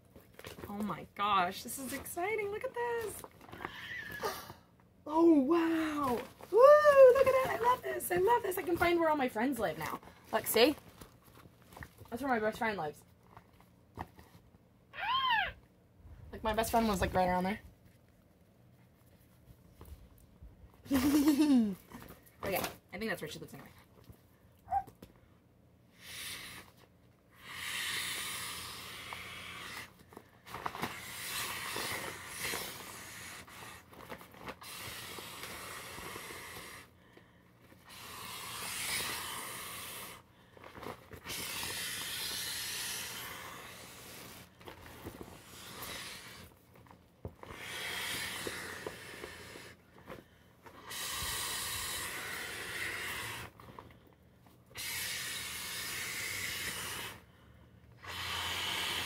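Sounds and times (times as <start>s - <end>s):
breathy blowing into inflatable: 25.9s - 37.1s, 37.8s - 46.6s, 47.4s - 53.6s, 54.7s - 59.0s.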